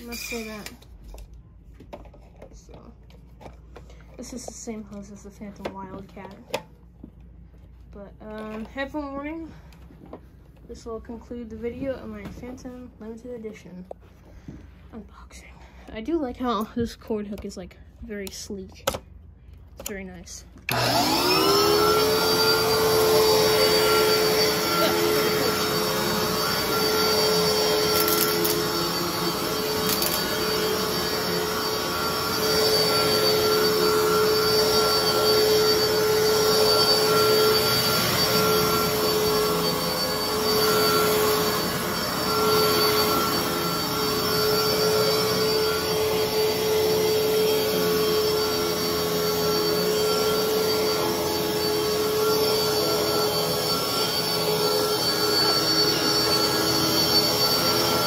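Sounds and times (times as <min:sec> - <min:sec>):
vacuum cleaner squealing whine: 0:00.0 - 0:00.8, 0:20.7 - 0:58.0.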